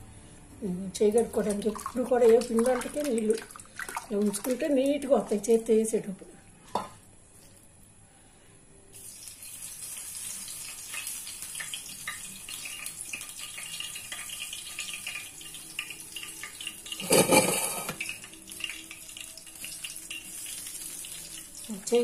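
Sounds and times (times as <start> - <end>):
hot oil sizzling in a frying pan: 8.9 - 22.0.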